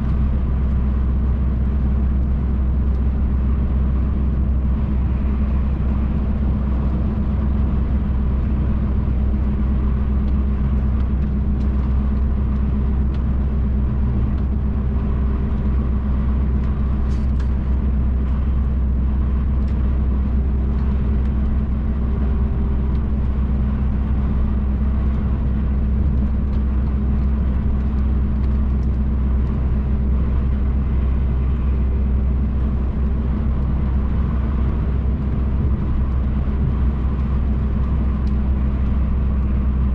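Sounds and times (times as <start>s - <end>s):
diesel engine droning: 0.0s - 39.9s
road and tyre rumble: 0.0s - 39.9s.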